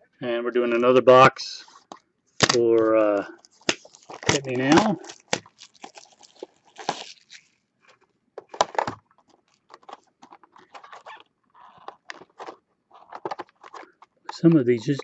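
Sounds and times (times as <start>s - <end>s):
foil wrapper crinkling and tearing: 2.4s - 14.0s.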